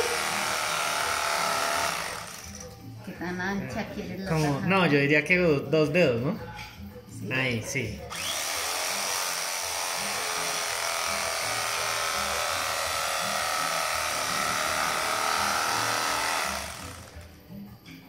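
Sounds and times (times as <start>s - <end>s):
electric carving knife running: 0.0s - 2.7s, 8.1s - 17.3s.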